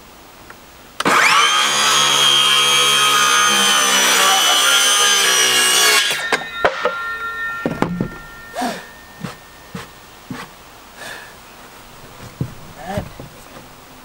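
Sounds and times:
circular saw cutting wood: 0:01.0 - 0:10.6
sharp knocks: 0:06.0 - 0:10.5.

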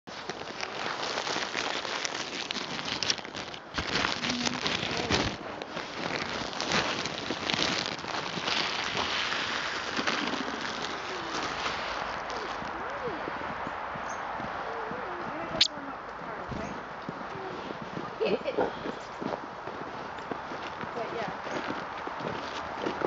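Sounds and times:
plastic bag crinkling: 0:00.1 - 0:12.8.

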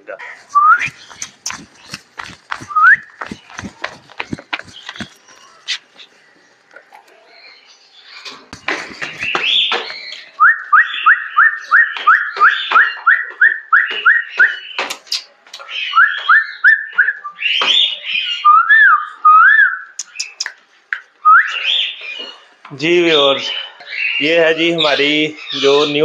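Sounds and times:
hooves tapping on concrete: 0:00.4 - 0:06.8, 0:08.3 - 0:10.6, 0:11.8 - 0:17.8
person whistling: 0:00.5 - 0:01.0, 0:02.6 - 0:03.4.

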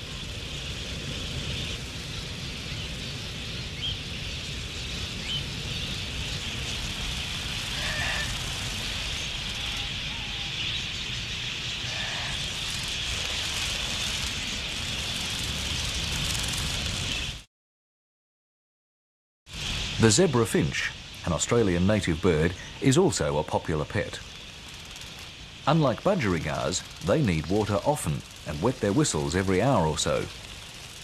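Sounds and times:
flock of budgerigars chattering: 0:02.6 - 0:16.3, 0:20.8 - 0:31.0.

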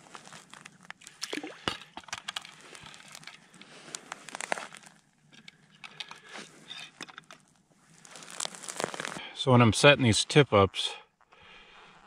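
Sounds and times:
small clicks and crunches: 0:00.0 - 0:09.2.

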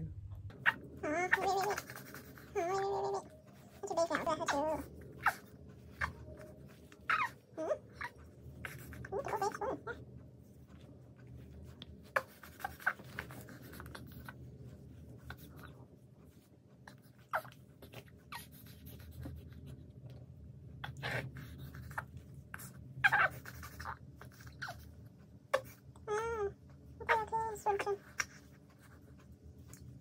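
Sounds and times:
baby grunting and whimpering: 0:00.6 - 0:10.0.

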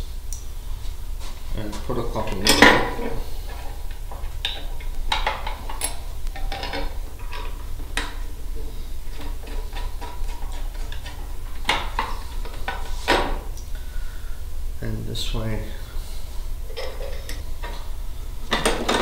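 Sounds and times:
metal bolts clicking and clinking: 0:02.2 - 0:08.2.

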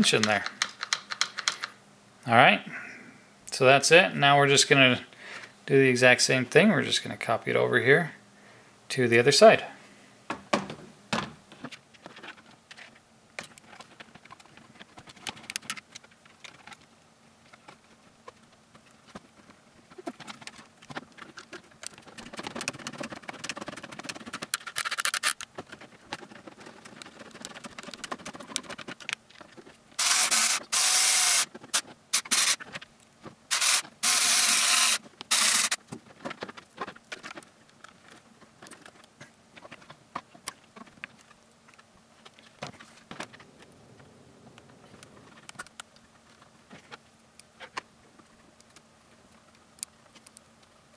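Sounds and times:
plastic parts clicking and rattling: 0:00.1 - 0:01.7, 0:11.5 - 0:32.9, 0:33.5 - 0:43.7
electric screwdriver running: 0:30.0 - 0:31.5, 0:32.2 - 0:32.6, 0:33.5 - 0:35.8.

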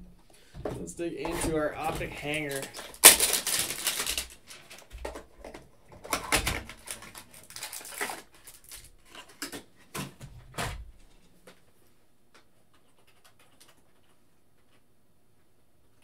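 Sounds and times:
cardboard and cards rustling: 0:00.6 - 0:11.7.

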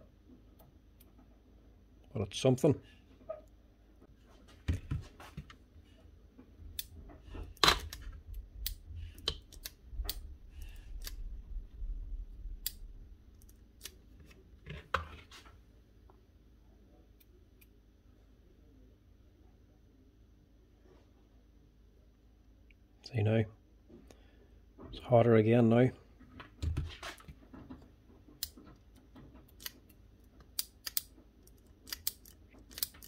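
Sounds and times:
low rumble: 0:10.3 - 0:13.3.

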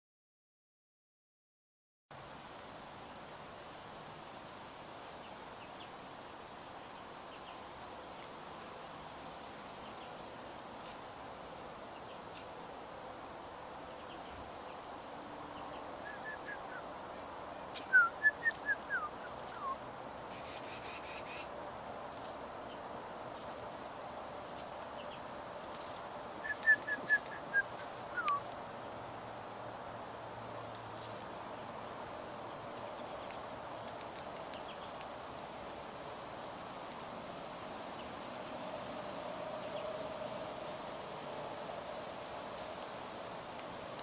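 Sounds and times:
steady background noise: 0:02.1 - 0:44.0
songbird chips: 0:13.9 - 0:28.6, 0:30.6 - 0:37.2
songbird whistled notes: 0:16.0 - 0:16.8, 0:17.8 - 0:19.8, 0:26.4 - 0:28.4.

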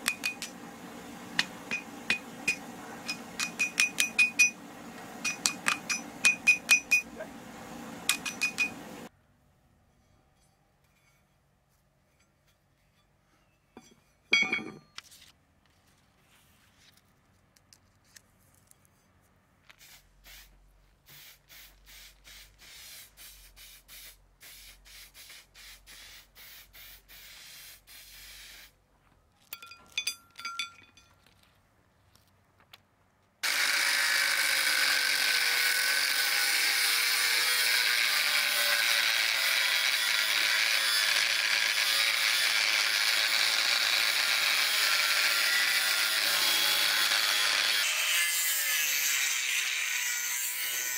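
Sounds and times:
angle grinder cutting steel: 0:00.0 - 0:09.1, 0:33.4 - 0:50.9
metallic clinks: 0:29.4 - 0:31.4.

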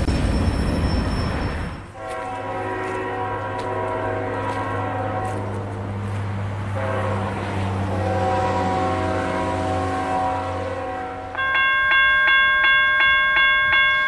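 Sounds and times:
train air horn blasts: 0:01.9 - 0:06.0, 0:06.7 - 0:11.4.

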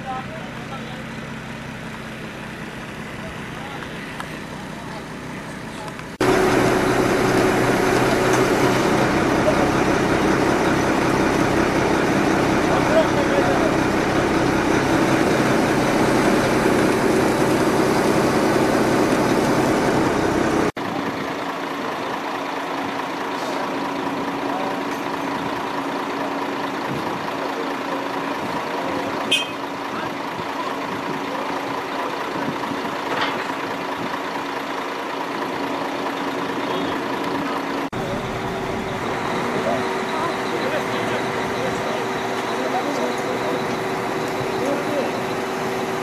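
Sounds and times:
crane engines running: 0:00.0 - 0:46.0.

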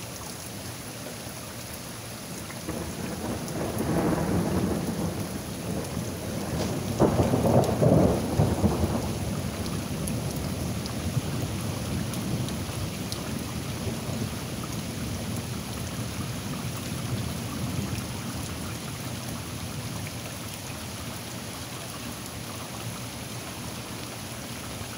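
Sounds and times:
heavy rain: 0:00.0 - 0:24.9
thunder clap rumbling: 0:02.7 - 0:11.2.

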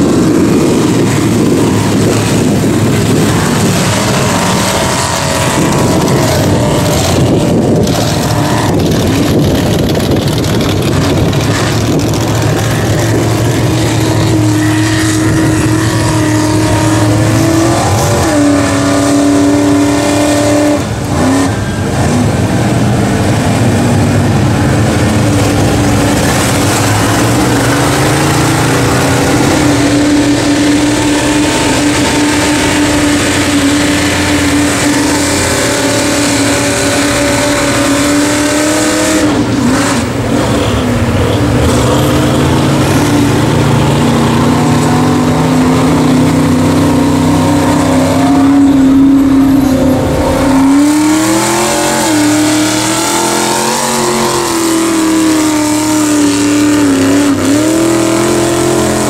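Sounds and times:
truck engine at high revs: 0:00.0 - 0:59.0
tyres churning through mud: 0:00.0 - 0:59.0.

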